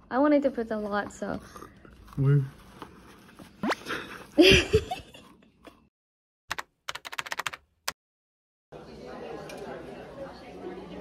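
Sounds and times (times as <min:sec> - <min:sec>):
keyboard typing clicks: 0:06.5 - 0:07.6.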